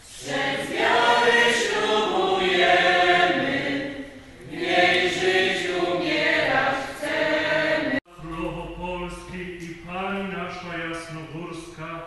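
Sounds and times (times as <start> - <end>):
choir singing a hymn: 0.0 - 8.7.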